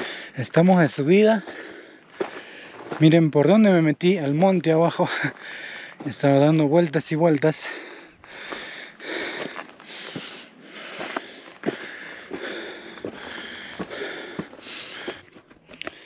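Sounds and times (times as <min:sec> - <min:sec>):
man breathing hard: 0:00.0 - 0:00.4, 0:01.4 - 0:03.0, 0:05.1 - 0:06.1, 0:07.6 - 0:16.0
footsteps: 0:01.4 - 0:03.6, 0:08.2 - 0:16.0.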